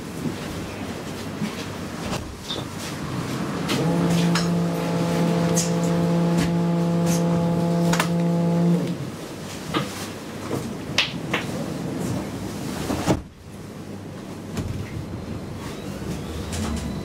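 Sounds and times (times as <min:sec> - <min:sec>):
tram door warning buzz: 0:03.5 - 0:09.2.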